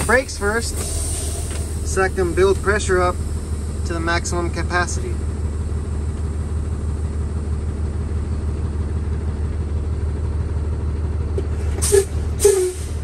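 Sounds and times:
air compressor building pressure: 0:00.0 - 0:07.0, 0:11.5 - 0:13.0
truck diesel engine idling: 0:00.0 - 0:13.0.

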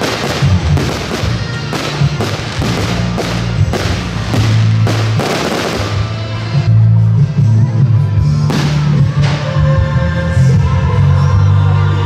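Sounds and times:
fireworks bursting with sharp bangs: 0:00.0 - 0:06.6, 0:08.4 - 0:09.5
loud music with bass notes: 0:00.0 - 0:12.0.

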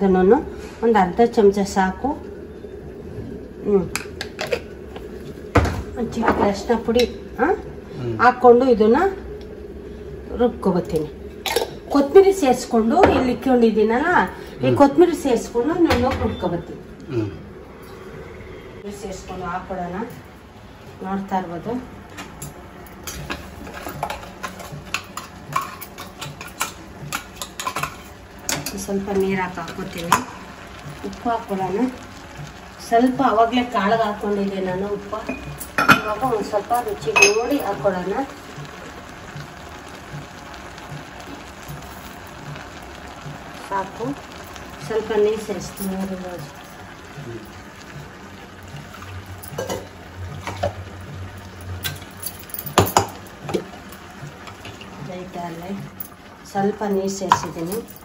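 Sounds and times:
low steady hum: 0:00.0 - 0:58.0
kitchen utensils clicking: 0:22.1 - 0:30.3.

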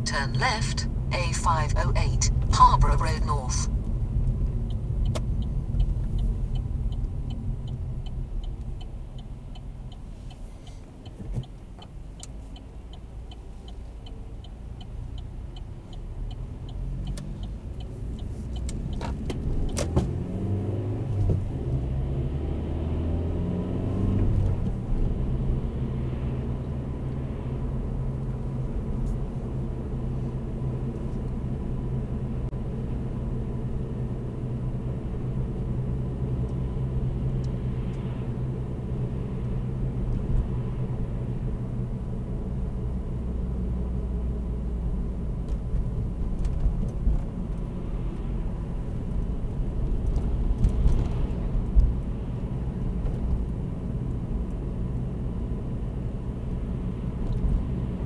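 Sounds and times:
car engine and road rumble: 0:00.0 - 0:58.0
turn indicator ticking: 0:00.1 - 0:21.5.

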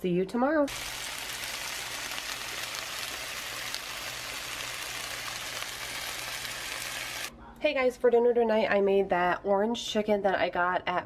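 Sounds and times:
vegetables sizzling in a frying pan: 0:00.7 - 0:07.3.

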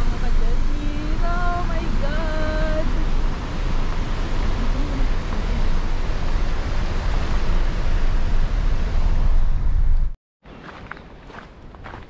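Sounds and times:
tyre noise on gravel road: 0:10.5 - 0:12.0.

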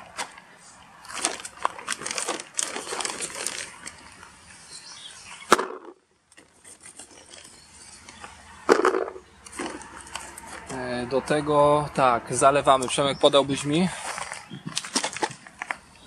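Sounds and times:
plastic bag rustling: 0:01.0 - 0:04.6, 0:08.7 - 0:10.7, 0:13.5 - 0:15.8.

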